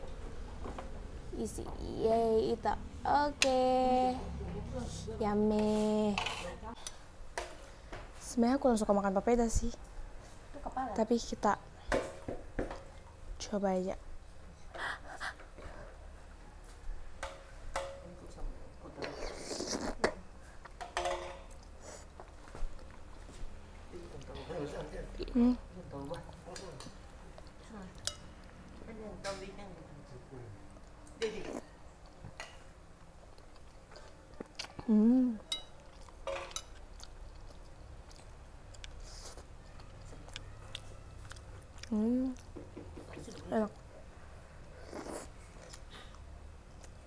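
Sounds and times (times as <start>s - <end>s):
wet slurping: 19.2s - 20.0s
person chewing food: 33.0s - 43.9s, 44.7s - 47.0s.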